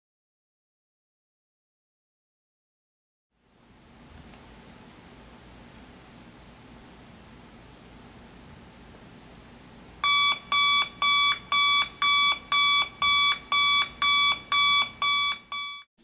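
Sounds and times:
alarm clock beeping: 10.0s - 15.9s.

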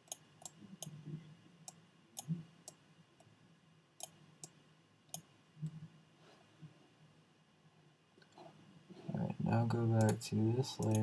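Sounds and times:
computer mouse clicking: 0.0s - 1.0s, 4.0s - 5.8s, 10.0s - 10.2s, 10.8s - 11.0s.

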